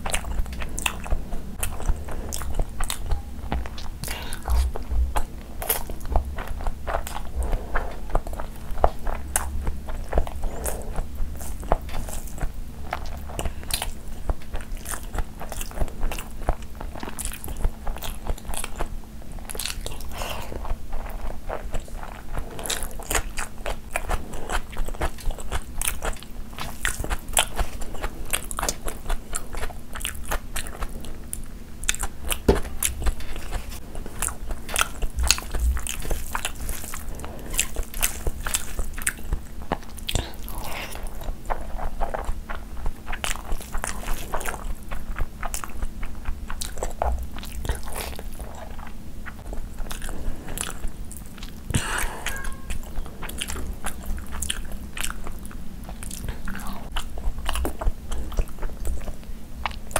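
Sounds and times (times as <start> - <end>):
chewing and biting food: 0.0 - 59.9
faint steady hum: 0.0 - 59.9.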